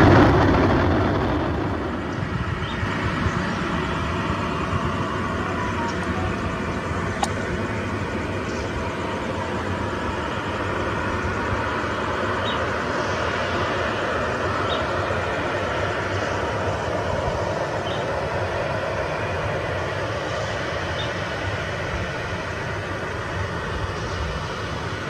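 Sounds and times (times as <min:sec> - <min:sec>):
jet engines at low power: 0:00.0 - 0:25.0.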